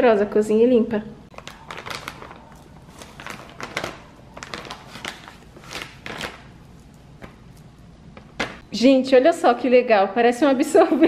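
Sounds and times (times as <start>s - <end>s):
plastic packaging crinkling: 1.3s - 8.6s.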